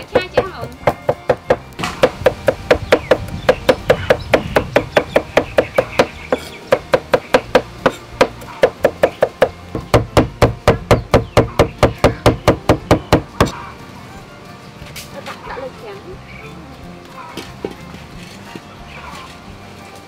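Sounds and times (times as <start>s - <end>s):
cleaver chopping on wooden block: 0.0s - 13.6s.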